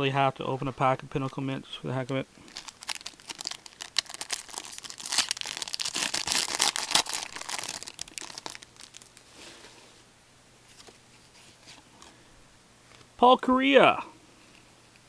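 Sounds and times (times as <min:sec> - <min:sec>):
card pack wrapper crinkling and tearing: 0:02.1 - 0:09.2.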